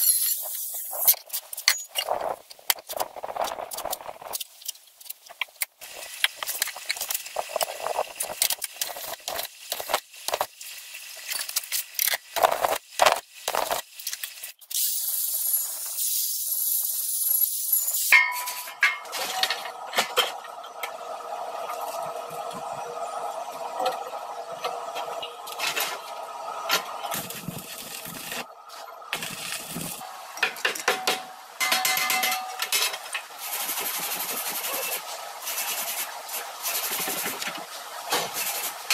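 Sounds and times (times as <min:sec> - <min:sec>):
arc welding crackling: 0:00.0 - 0:18.2, 0:26.9 - 0:30.4.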